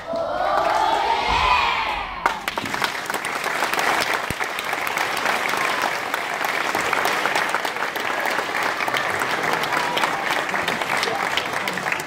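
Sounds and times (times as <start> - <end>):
children's choir singing: 0.0 - 2.2
audience applause: 2.2 - 12.0.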